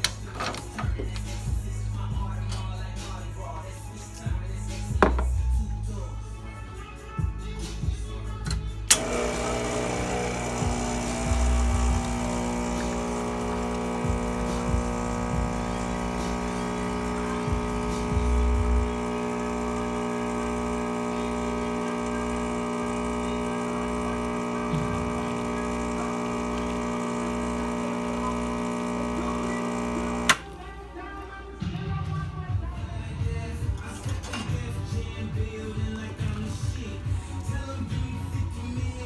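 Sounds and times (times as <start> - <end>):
espresso machine pump humming: 8.9 - 30.5.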